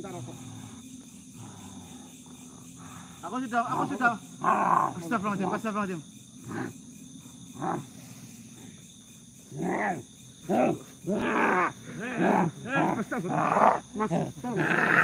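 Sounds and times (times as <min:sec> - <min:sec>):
man growling and roaring: 0:09.6 - 0:15.0.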